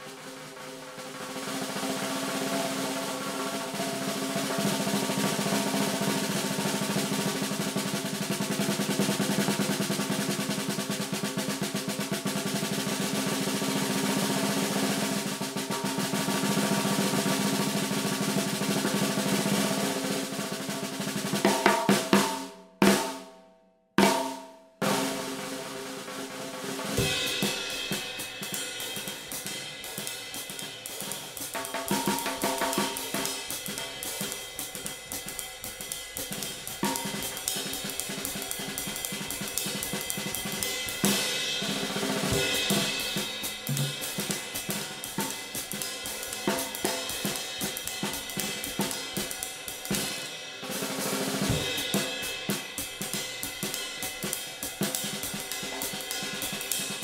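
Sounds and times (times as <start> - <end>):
cymbal: 0.0 - 23.3, 24.0 - 57.0
drum beat: 0.0 - 23.3, 24.0 - 57.0
snare drum roll: 0.0 - 23.3, 24.0 - 57.0
single snare strokes ringing: 27.0 - 50.4.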